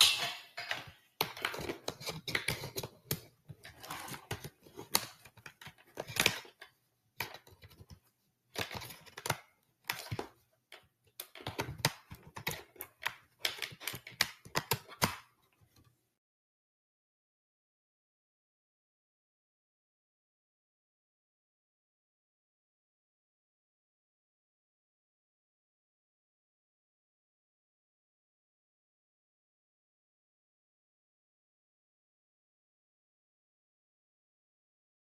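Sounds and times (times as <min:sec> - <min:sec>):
clicks and rustles: 0:00.0 - 0:15.9.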